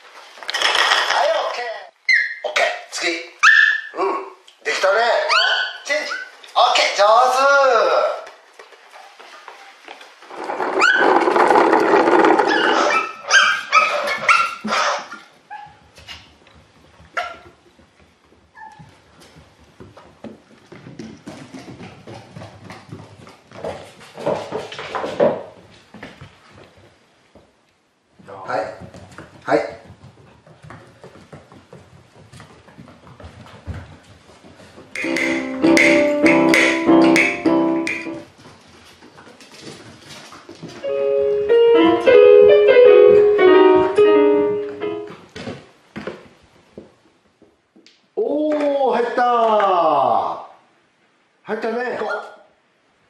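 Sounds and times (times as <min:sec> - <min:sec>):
dog claws clicking on hard floor: 0:00.4 - 0:01.4, 0:09.9 - 0:13.0
piano melody of held notes: 0:35.0 - 0:38.3, 0:40.8 - 0:45.1.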